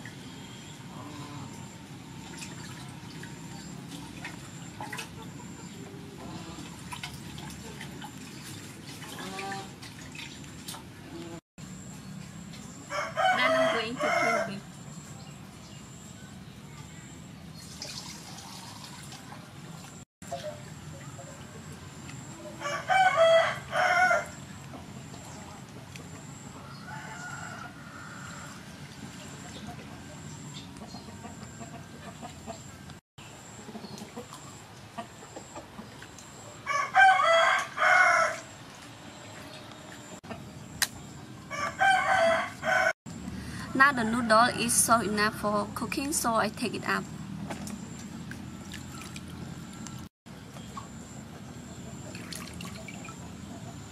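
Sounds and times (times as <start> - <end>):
water dripping and splashing in a bowl: 2.2 - 5.3, 6.6 - 11.3, 17.6 - 22.2, 47.5 - 51.0, 52.0 - 53.4
rooster crowing: 12.9 - 14.6, 22.4 - 24.4, 26.6 - 28.7, 36.6 - 38.5, 41.4 - 44.7.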